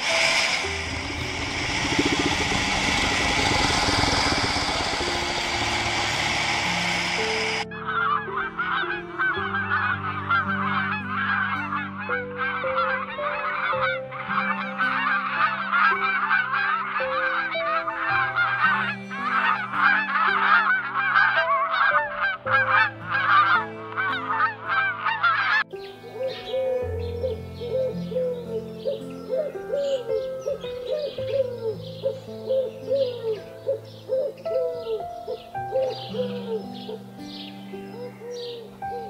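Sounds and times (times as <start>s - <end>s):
background music with low notes: 0.0s - 39.0s
flock of geese honking: 0.0s - 39.0s.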